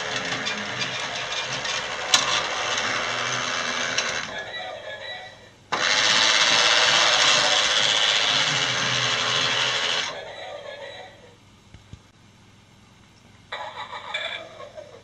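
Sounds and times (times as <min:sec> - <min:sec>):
toy train motor whirring: 0:00.0 - 0:04.4, 0:05.7 - 0:10.2.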